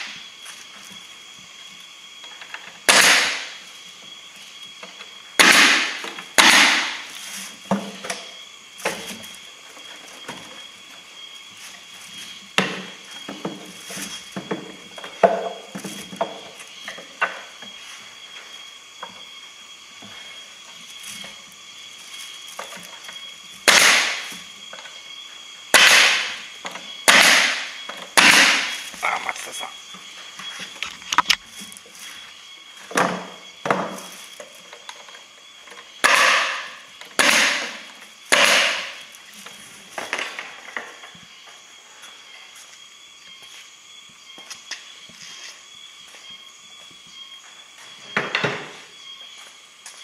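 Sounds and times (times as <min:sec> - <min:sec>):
nail gun firing into wood: 0:02.9 - 0:03.5, 0:05.4 - 0:07.0, 0:23.6 - 0:24.3, 0:25.7 - 0:26.4, 0:27.0 - 0:28.7, 0:36.0 - 0:39.0.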